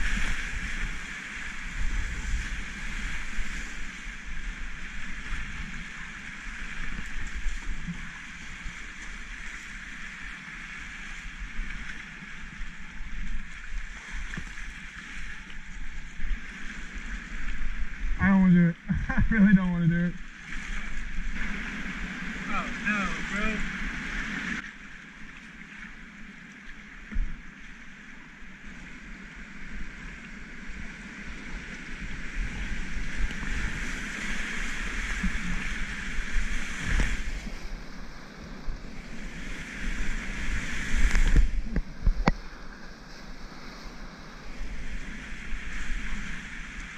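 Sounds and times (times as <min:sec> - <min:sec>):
wind rumble on microphone: 0:00.0 - 0:46.9
whitewater rapids rushing: 0:20.8 - 0:24.6.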